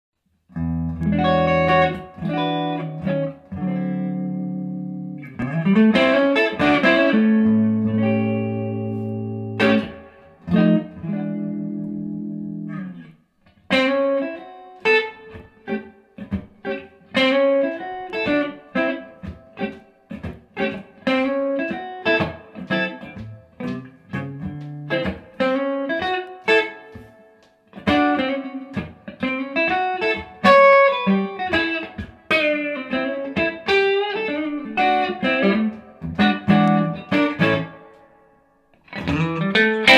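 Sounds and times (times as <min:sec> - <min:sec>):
electric guitar chords and notes: 0:00.5 - 0:39.9.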